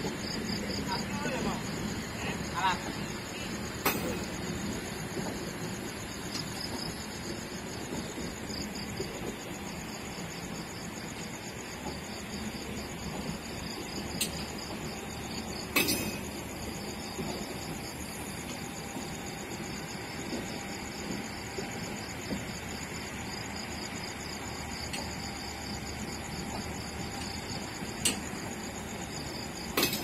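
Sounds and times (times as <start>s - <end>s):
insects trilling: 0.0s - 30.0s.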